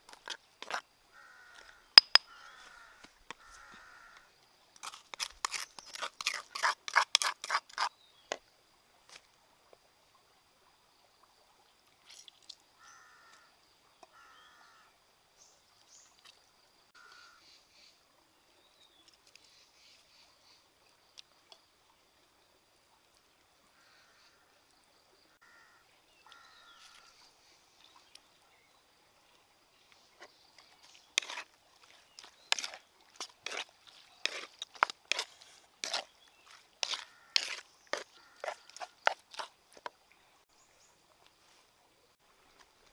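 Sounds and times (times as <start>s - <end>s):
crows cawing: 1.2s - 4.3s, 12.8s - 13.5s, 14.2s - 14.9s, 17.0s - 17.4s, 25.4s - 27.1s, 36.8s - 37.6s, 38.2s - 38.8s.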